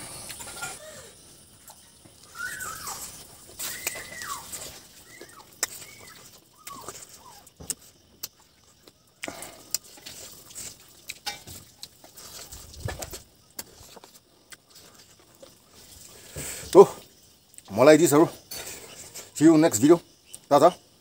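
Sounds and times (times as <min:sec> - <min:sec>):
faint bird chirps: 0:00.5 - 0:07.7.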